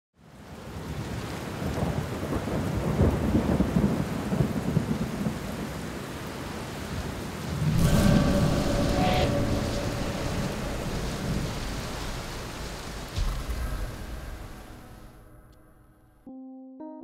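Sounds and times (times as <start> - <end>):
steady rain: 0.2 - 15.6
low thunder rumbles: 6.9 - 16.2.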